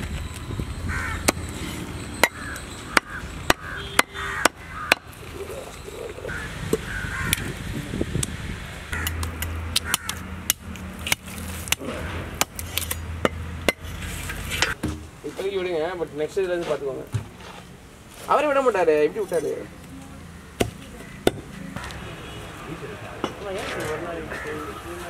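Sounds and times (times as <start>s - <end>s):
crows cawing: 0.9s - 1.4s, 2.2s - 5.5s, 6.2s - 7.5s, 8.9s - 9.2s, 9.8s - 10.3s, 20.4s - 22.0s, 23.6s - 24.8s
cleaver chopping on wooden block: 20.6s - 21.5s.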